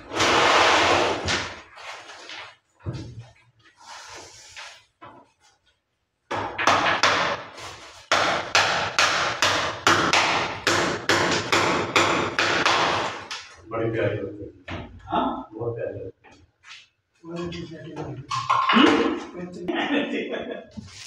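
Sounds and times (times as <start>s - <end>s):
hammer striking wall: 6.3s - 7.5s, 8.1s - 13.4s.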